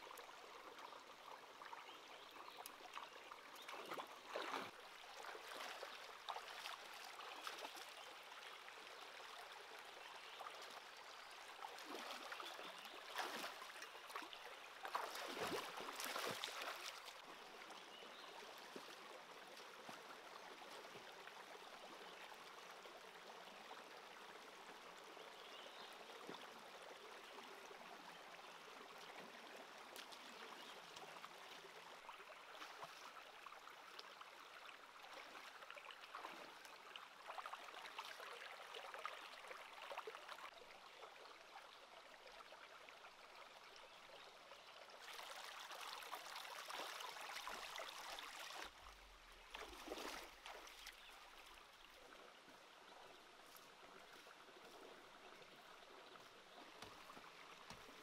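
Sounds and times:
stream trickling over rocks: 0:00.0 - 0:58.0.

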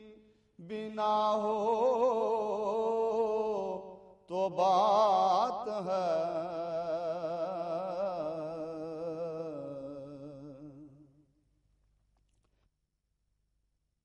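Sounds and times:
man singing a long note: 0:00.0 - 0:11.0.

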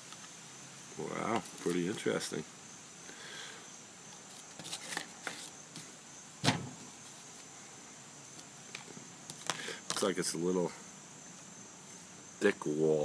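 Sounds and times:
sharp knock: 0:06.4 - 0:06.8.

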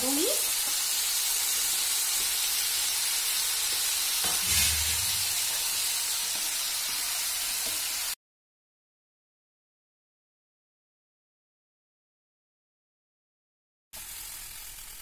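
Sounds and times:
vegetables sizzling in a wok: 0:00.0 - 0:08.2, 0:14.0 - 0:15.0.

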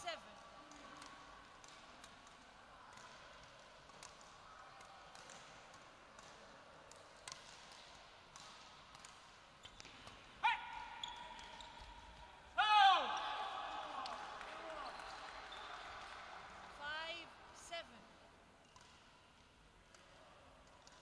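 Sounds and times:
rackets tapping shuttlecock: 0:00.6 - 0:12.4, 0:18.6 - 0:21.0
court shoes squeaking: 0:07.2 - 0:12.5, 0:14.6 - 0:16.1.

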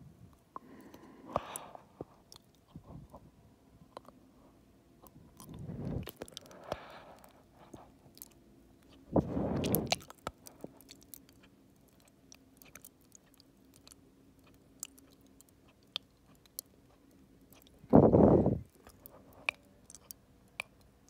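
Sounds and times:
wet mouth sounds: 0:08.2 - 0:16.7
saliva clicks and tongue smacks: 0:09.6 - 0:17.8, 0:18.7 - 0:21.0.

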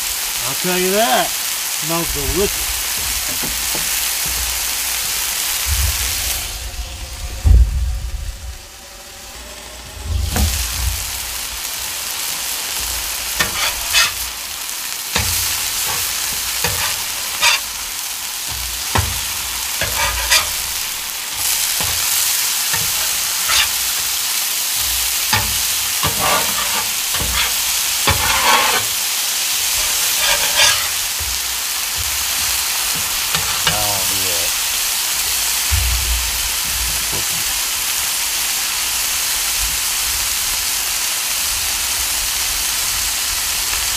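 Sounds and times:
food sizzling on griddle: 0:00.0 - 0:43.9
metal utensils scraping griddle: 0:01.9 - 0:05.7, 0:12.3 - 0:34.4, 0:36.6 - 0:37.7.

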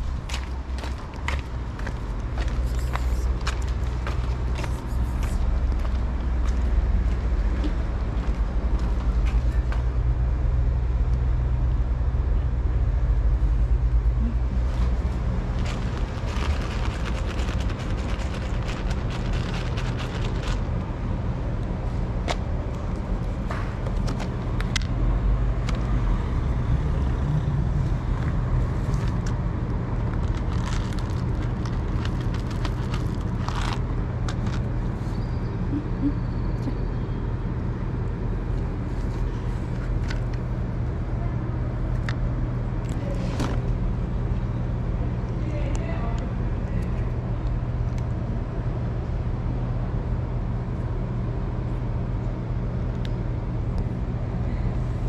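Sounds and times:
motor vehicle engine rumbling: 0:00.0 - 0:55.0.

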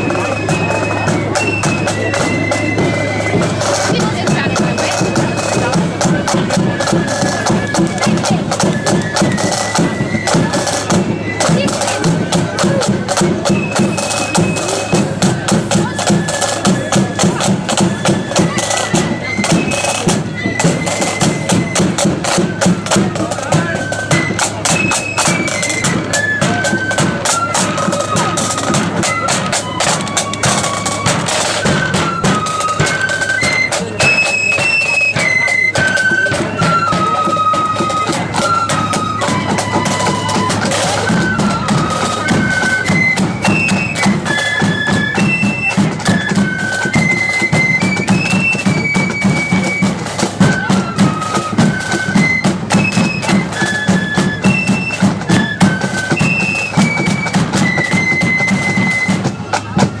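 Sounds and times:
flute melody: 0:00.0 - 1:00.0
marching drums and cymbals: 0:00.0 - 1:00.0.

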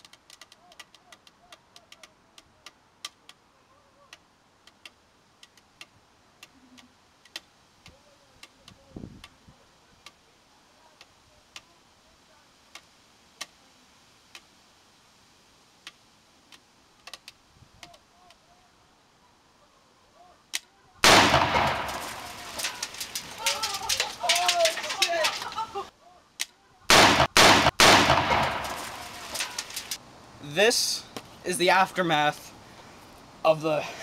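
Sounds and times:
plastic bottle ticking and clicking: 0:00.0 - 0:03.4.

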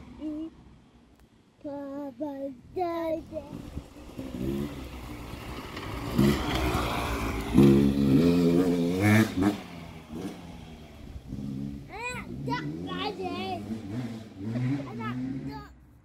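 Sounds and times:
motorcycle riding past: 0:03.2 - 0:15.8.

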